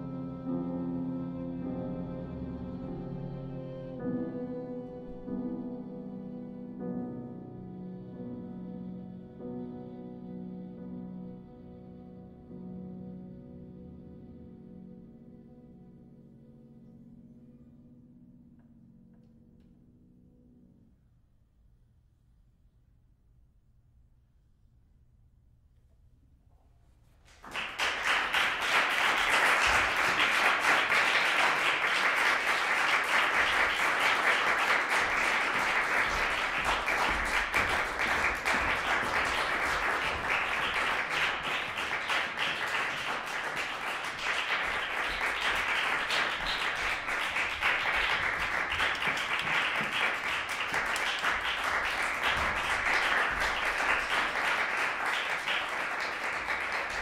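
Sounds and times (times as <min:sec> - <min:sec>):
audience applauding: 0:27.3 - 0:57.0.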